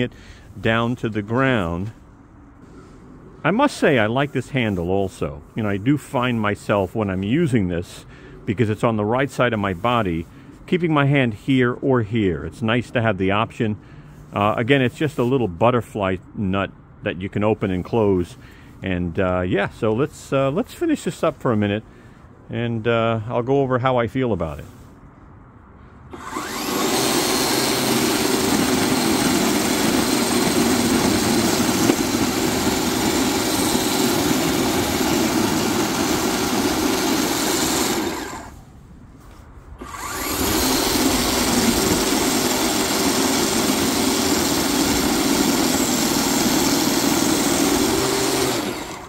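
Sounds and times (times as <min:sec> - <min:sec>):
snow shovel motor whirring: 0:26.1 - 0:38.7, 0:39.8 - 0:49.0.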